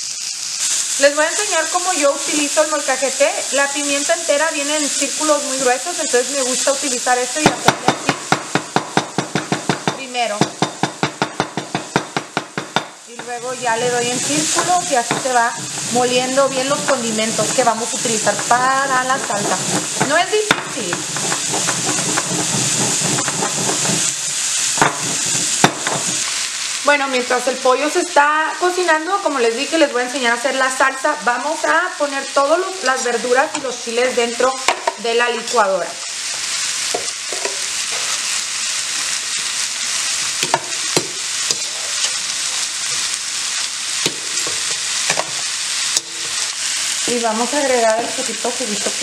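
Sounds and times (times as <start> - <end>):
vegetables sizzling in a wok: 0.0 - 49.0
stone pestle grinding in mortar: 13.7 - 24.2, 24.8 - 26.3.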